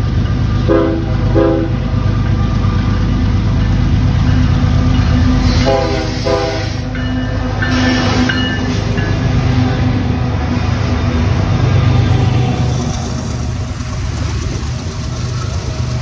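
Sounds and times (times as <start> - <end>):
diesel locomotive engines droning: 0.0 - 16.0
train horn blasts: 0.6 - 1.9, 5.4 - 6.9
train wheel squeals: 2.0 - 16.0.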